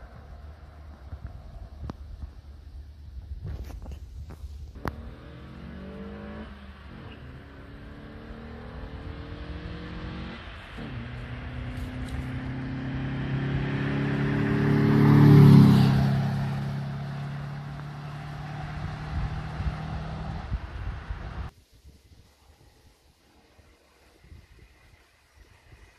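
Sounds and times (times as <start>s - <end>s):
car engine accelerating past: 4.8s - 21.5s.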